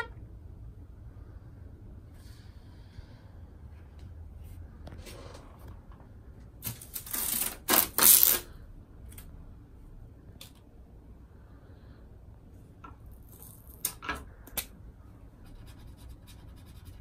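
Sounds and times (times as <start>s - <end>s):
masking tape ripping: 6.6s - 8.5s.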